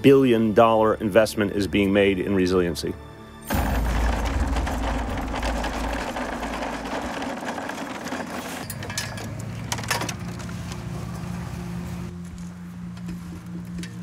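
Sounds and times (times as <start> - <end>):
shopping cart rattling on pavement: 3.5 - 10.3
plastic poles clattering: 3.5 - 10.5.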